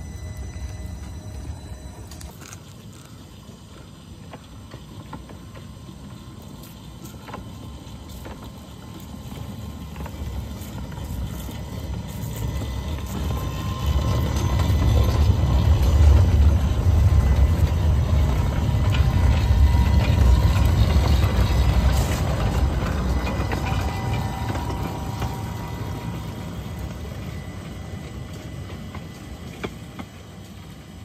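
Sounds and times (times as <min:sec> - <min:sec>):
steel wheels rumbling on rails: 0:00.0 - 0:31.0.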